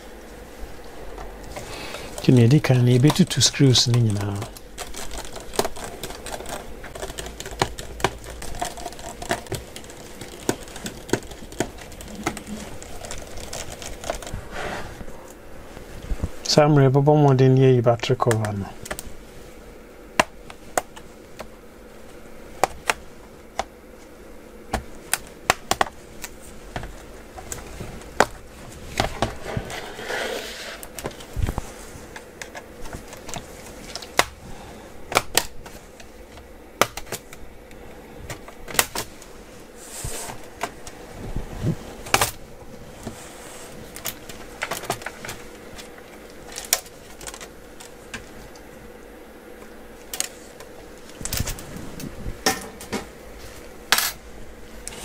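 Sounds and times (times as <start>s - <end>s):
faint steady hum: 0.0s - 55.0s
plastic clips clicking and snapping: 2.9s - 14.3s, 35.1s - 37.4s.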